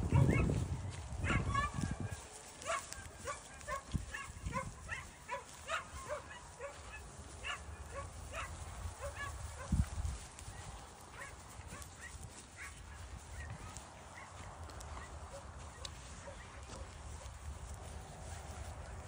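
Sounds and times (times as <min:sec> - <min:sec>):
dog yapping: 0:00.1 - 0:00.5, 0:01.2 - 0:09.7.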